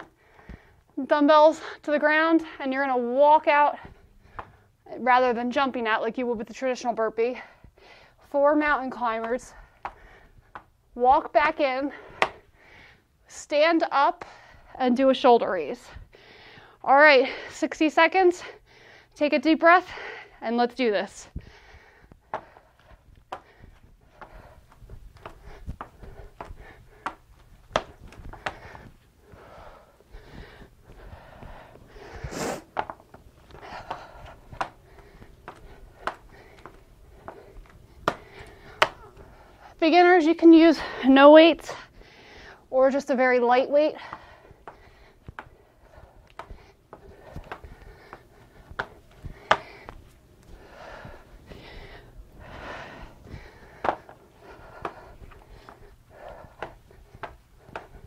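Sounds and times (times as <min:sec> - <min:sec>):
woman breathing hard: 0:00.0 - 0:01.0, 0:03.8 - 0:04.8, 0:07.3 - 0:08.3, 0:09.4 - 0:10.8, 0:11.8 - 0:13.2, 0:14.2 - 0:14.8, 0:15.8 - 0:17.6, 0:18.2 - 0:19.2, 0:19.8 - 0:20.4, 0:21.2 - 0:42.7, 0:43.7 - 0:58.0
dumbbells and feet knocking on floor: 0:22.1 - 0:22.6, 0:23.2 - 0:29.5, 0:32.7 - 0:39.2, 0:46.4 - 0:50.0, 0:53.3 - 0:55.1.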